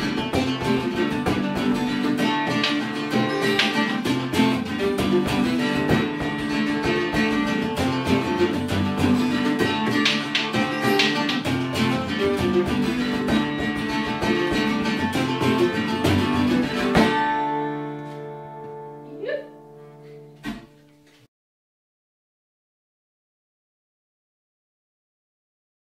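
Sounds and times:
frame drum beating: 0:00.0 - 0:17.3
plucked strings: 0:00.0 - 0:21.2
strummed acoustic guitar: 0:00.0 - 0:21.3.

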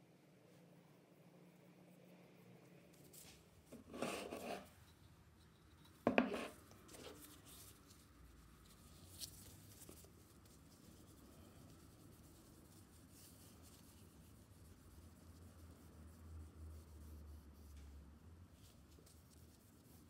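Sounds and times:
scraping rustle: 0:03.0 - 0:04.9
cloth rubbing on wood: 0:03.7 - 0:04.7, 0:06.1 - 0:07.7.

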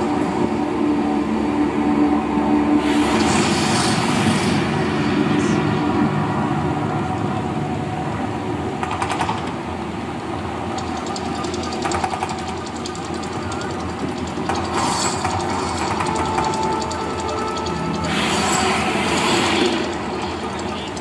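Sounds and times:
low rumble: 0:00.0 - 0:09.0
flame jets hissing: 0:02.8 - 0:08.5, 0:17.2 - 0:21.0.

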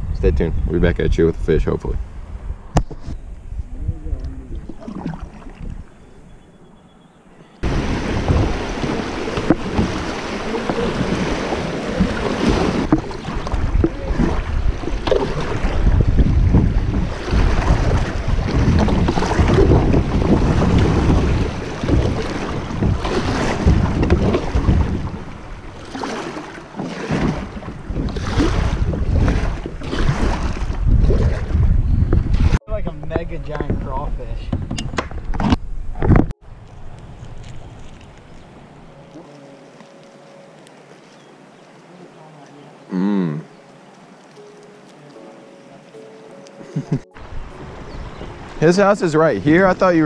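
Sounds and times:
wind buffeting microphone: 0:00.0 - 0:06.6, 0:07.6 - 0:26.2, 0:27.0 - 0:39.1, 0:46.6 - 0:50.0
water rushing through creek: 0:04.3 - 0:06.0, 0:07.6 - 0:31.5, 0:36.5 - 0:50.0.

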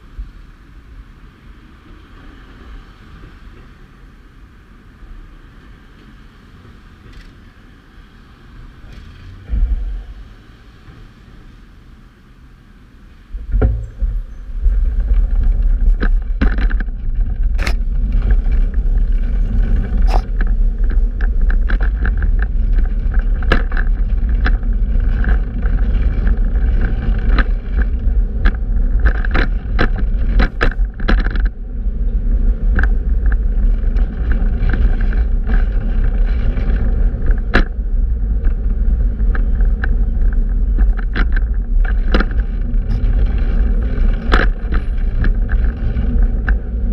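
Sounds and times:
bicycle road rumble: 0:00.0 - 0:46.9
wind buffeting microphone: 0:00.0 - 0:46.9
bicycle clicks and rattles: 0:13.6 - 0:46.9.

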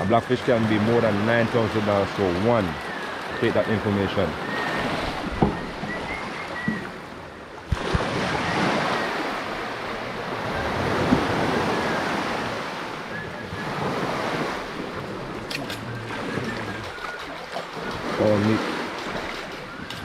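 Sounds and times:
waves washing up a beach: 0:00.0 - 0:20.0
wind on microphone: 0:04.3 - 0:20.0.

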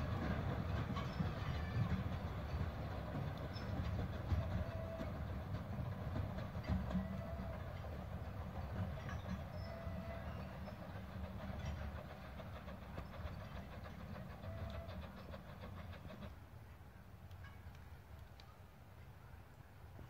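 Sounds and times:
steam train rumbling: 0:00.0 - 0:20.0.

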